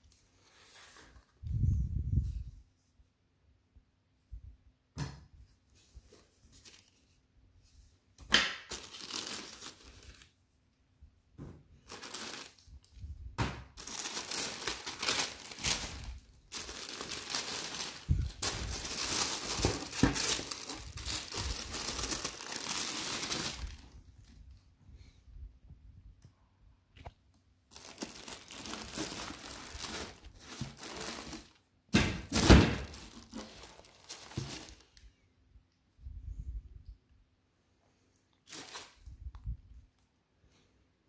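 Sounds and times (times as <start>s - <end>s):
tissue paper crinkling: 5.8s - 7.2s, 8.7s - 10.3s, 11.8s - 13.0s, 13.8s - 24.3s, 27.7s - 31.6s, 32.3s - 35.0s, 38.4s - 39.0s.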